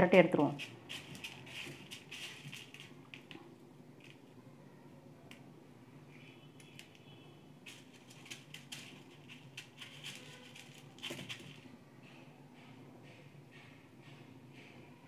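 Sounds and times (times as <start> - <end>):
dry noodle pieces crackling: 0.4 - 4.4, 6.1 - 11.7.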